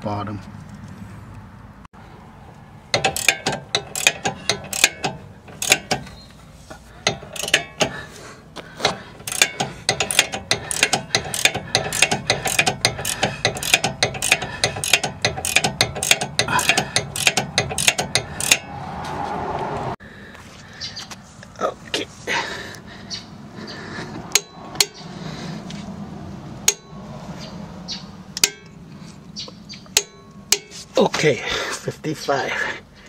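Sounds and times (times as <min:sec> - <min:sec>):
socket ratchet clicking: 0:02.9 - 0:06.1, 0:07.0 - 0:08.0, 0:09.2 - 0:18.7.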